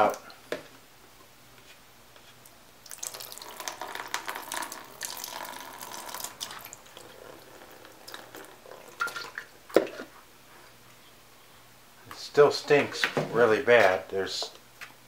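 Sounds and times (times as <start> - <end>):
liquid pouring and splashing into tub: 2.8 - 10.1.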